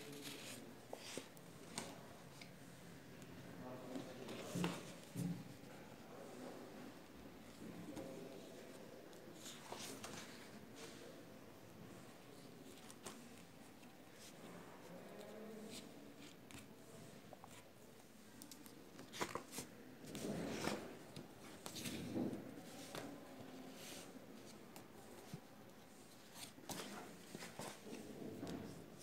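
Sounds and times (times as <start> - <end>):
card and paper rustling: 18.4 - 20.8.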